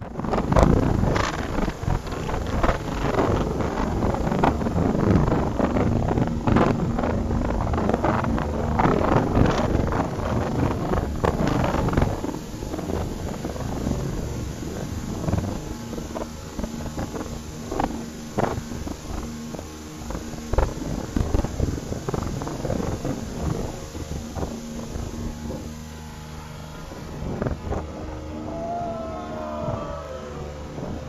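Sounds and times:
boat motor humming: 0:00.0 - 0:31.0
water rushing along hull: 0:00.0 - 0:31.0
wind buffeting microphone: 0:00.0 - 0:31.0.

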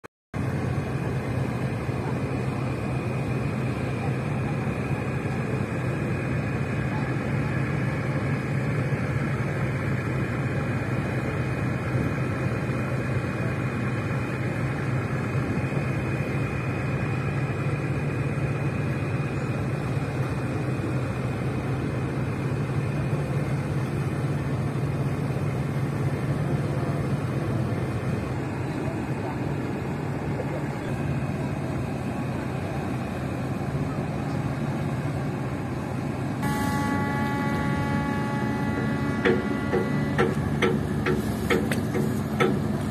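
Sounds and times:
ship diesel engine droning: 0:00.4 - 0:42.9.

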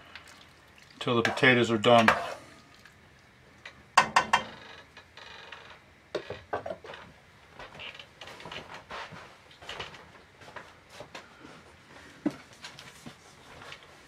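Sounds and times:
metal spoon knocking on pot: 0:04.0 - 0:04.6.

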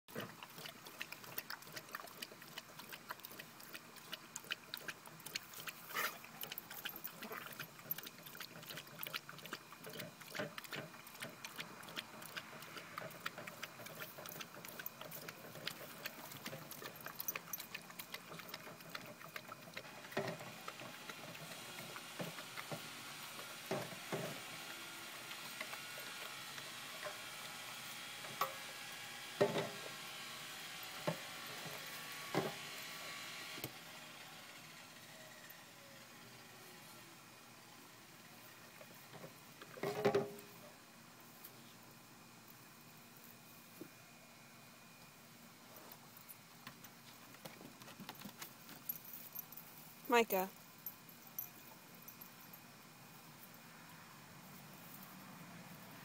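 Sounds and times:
dogs lapping water: 0:00.1 - 0:27.2.

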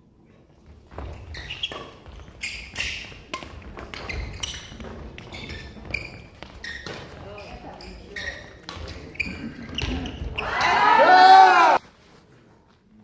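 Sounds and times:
shoes squeaking on court: 0:00.3 - 0:10.8
racket hitting shuttlecock: 0:01.0 - 0:05.8.

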